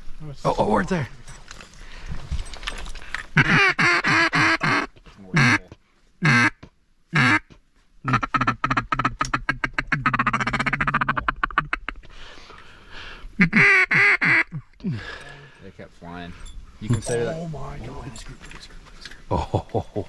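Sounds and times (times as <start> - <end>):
duck call quacks: 3.4 - 12.0, 13.4 - 14.6.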